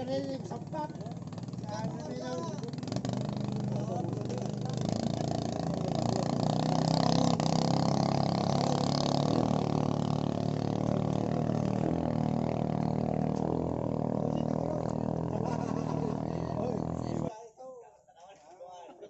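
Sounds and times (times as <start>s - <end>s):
small boat engine running: 0.0s - 17.3s.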